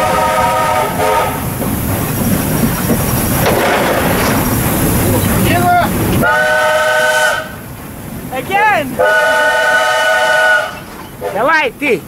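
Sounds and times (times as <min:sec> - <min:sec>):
steam whistle blast: 0:00.0 - 0:01.4, 0:06.2 - 0:07.6, 0:09.0 - 0:10.8
steam locomotive rumble and hiss: 0:00.0 - 0:12.0.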